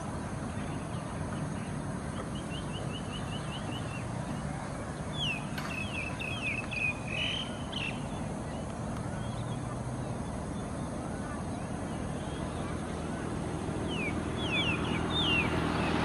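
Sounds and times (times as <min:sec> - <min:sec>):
birds chirping: 0:00.0 - 0:16.0
bird whistles: 0:13.9 - 0:15.5.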